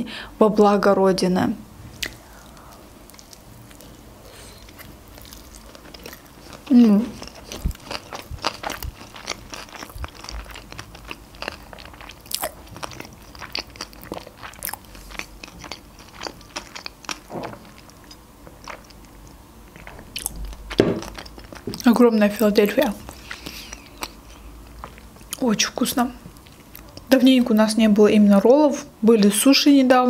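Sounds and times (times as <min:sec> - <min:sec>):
person chewing: 0:01.9 - 0:25.5, 0:26.2 - 0:27.1.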